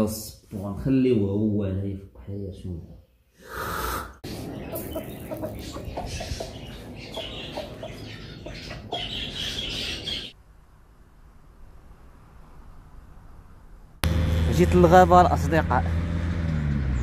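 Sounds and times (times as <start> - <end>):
background noise: 0.0 - 14.0
chicken clucking: 4.2 - 10.3.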